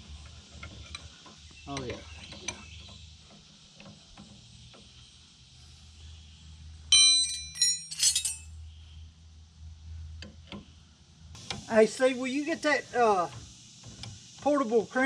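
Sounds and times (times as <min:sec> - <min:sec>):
steel wrenches clinking: 0:06.9 - 0:08.5
low steady hum: 0:06.9 - 0:08.9.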